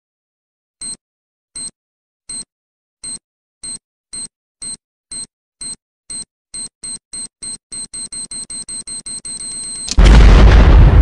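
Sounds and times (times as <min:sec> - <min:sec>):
high electronic beeps: 0:02.3 - 0:10.0.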